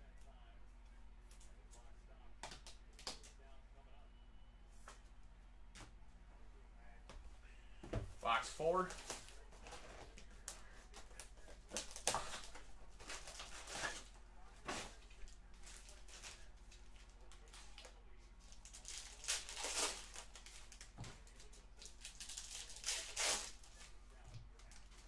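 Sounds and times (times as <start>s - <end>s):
low steady hum: 0.0s - 25.0s
plastic wrapping crinkling: 18.5s - 23.8s.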